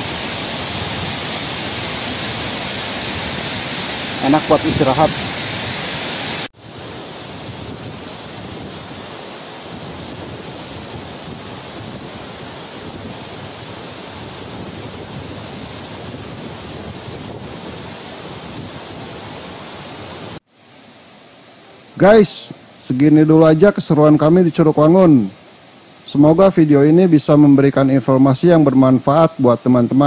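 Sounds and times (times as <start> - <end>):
whitewater rushing over rocks: 0.0 - 22.4.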